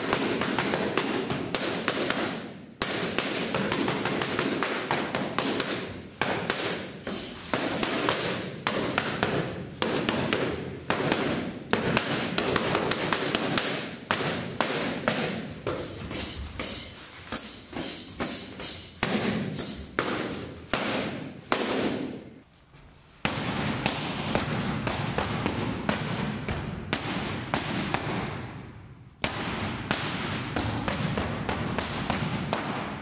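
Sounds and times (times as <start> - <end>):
boxing gloves smacking mitts: 0.0 - 22.3, 29.2 - 33.0.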